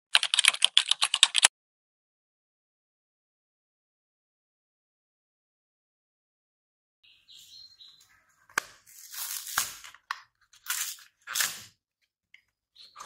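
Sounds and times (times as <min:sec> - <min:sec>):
sharp clicks: 0:00.1 - 0:01.5
plastic packaging tearing and crinkling: 0:08.8 - 0:11.8.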